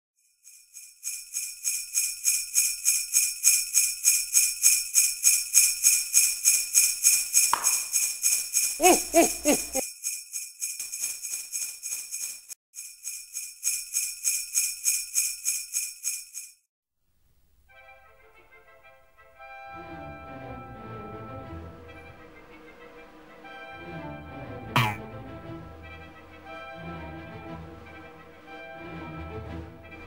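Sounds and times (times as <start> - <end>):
sleigh bells jingling: 0.2 - 16.6.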